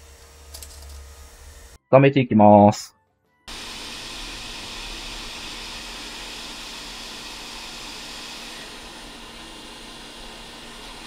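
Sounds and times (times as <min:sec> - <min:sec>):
heat gun blowing air: 0:03.5 - 0:11.0.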